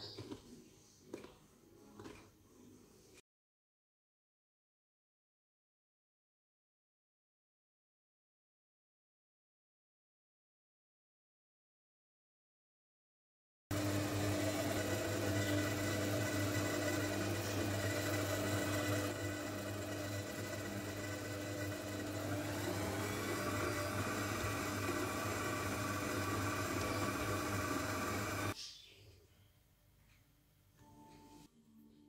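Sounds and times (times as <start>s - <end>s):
stand mixer motor running: 13.7s - 28.6s.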